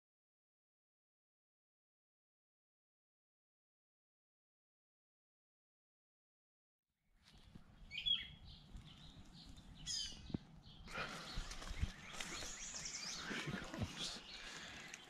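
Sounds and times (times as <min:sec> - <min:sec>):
birds chirping and singing: 0:07.3 - 0:15.0.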